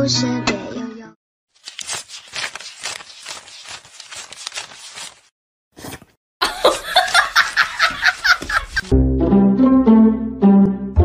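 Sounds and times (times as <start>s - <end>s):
banknotes being flicked: 1.6s - 5.3s.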